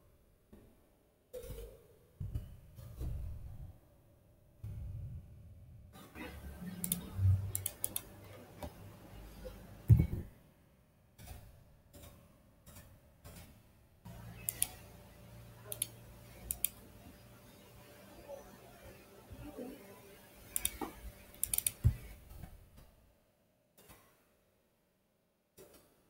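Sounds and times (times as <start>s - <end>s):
mouse and keyboard clicks: 6.7s - 8.1s, 14.4s - 14.8s, 15.7s - 16.8s, 20.6s - 22.0s.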